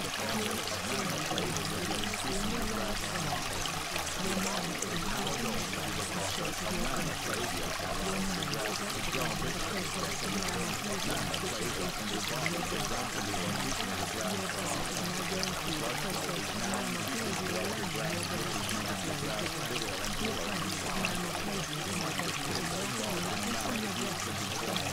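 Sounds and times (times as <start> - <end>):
running water rushing: 0.0 - 24.9.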